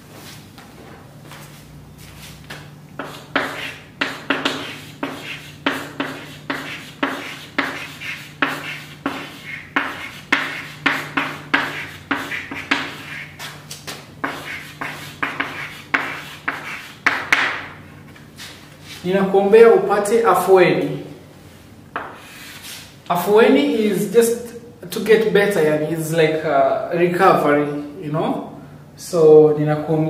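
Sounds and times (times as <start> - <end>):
chalk scratching on chalkboard: 3.0 - 17.8.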